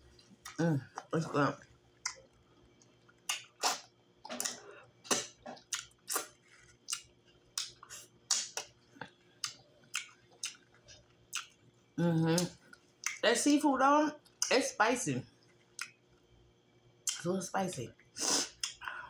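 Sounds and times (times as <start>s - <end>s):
wet chewing and lip smacks: 0.2s - 11.6s, 15.6s - 16.0s.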